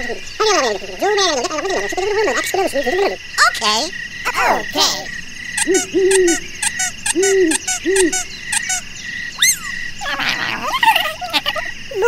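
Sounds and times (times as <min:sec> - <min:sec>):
warbling cartoon noises: 0:00.0 - 0:12.0
low hooting calls: 0:04.2 - 0:12.0
fast clicking chirp: 0:05.6 - 0:09.8
rising and falling whistle: 0:09.4 - 0:09.7.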